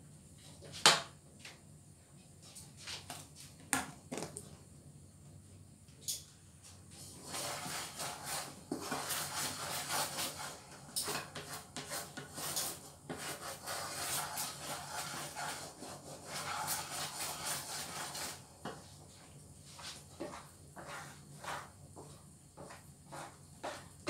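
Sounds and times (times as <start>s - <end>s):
wooden spatula scraping a pan: 7.0s - 19.0s, 19.6s - 24.0s.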